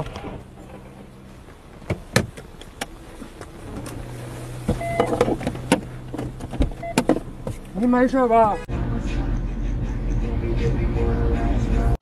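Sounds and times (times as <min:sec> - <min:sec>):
car engine hum: 0:00.0 - 0:12.0
sharp clicks and knocks: 0:04.7 - 0:07.8.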